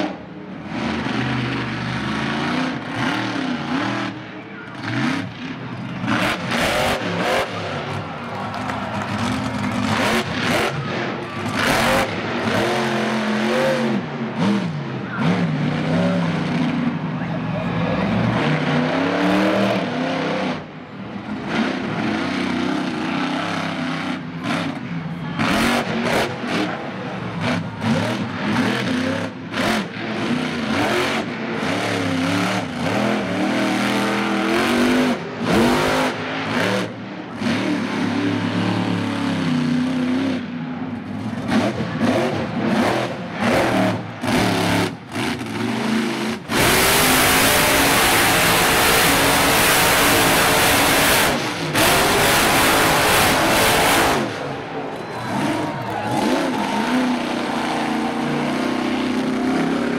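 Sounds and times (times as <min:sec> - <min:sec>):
monster truck engine revving: 0:00.0 - 0:59.9.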